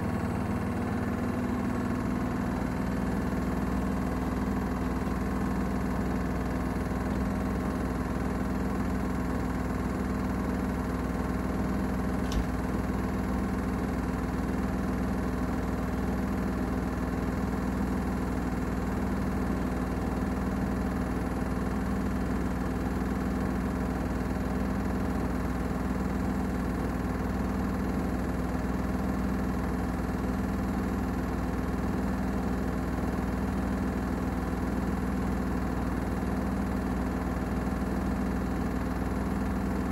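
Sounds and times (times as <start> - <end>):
washing machine spinning: 0.0 - 39.9
brief click: 12.2 - 12.5.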